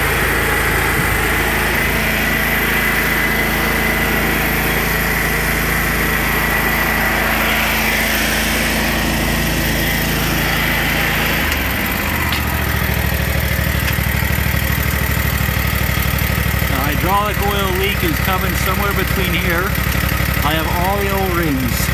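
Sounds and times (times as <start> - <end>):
engine running: 0.0 - 21.9.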